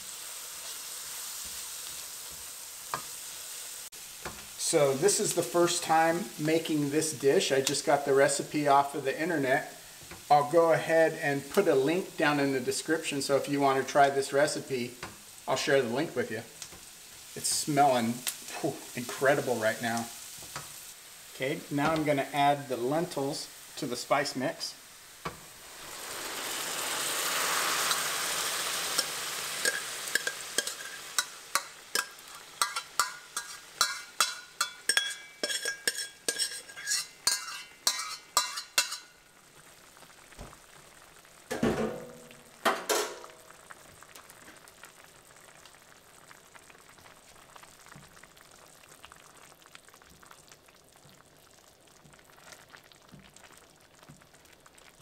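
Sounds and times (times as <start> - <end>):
faint simmer: 0.0 - 55.0
liquid sizzling in hot oil: 0.0 - 55.0
spoon knocking and scraping pot: 29.0 - 39.1.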